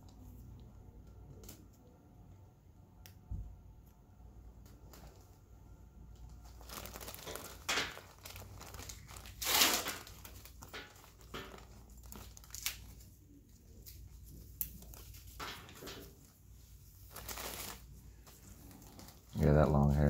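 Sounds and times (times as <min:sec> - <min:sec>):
gauze and gloves rustling: 0:06.2 - 0:20.0.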